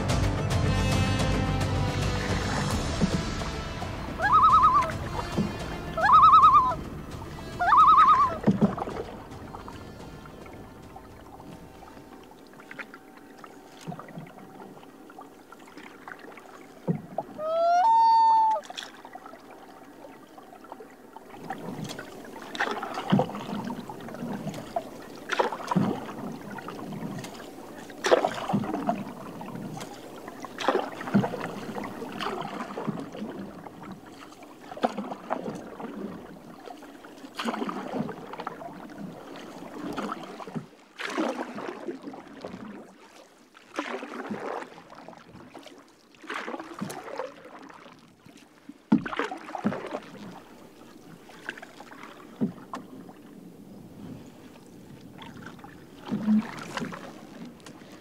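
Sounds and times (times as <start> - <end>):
canoe paddle strokes in water: 0.0 - 58.0
loon wailing: 4.1 - 5.0, 5.9 - 6.8, 7.5 - 8.5, 17.4 - 18.6.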